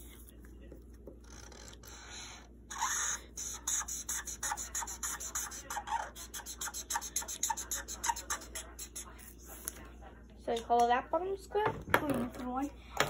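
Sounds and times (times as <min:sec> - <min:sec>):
felt-tip marker scribbling on paper: 0:01.2 - 0:09.7.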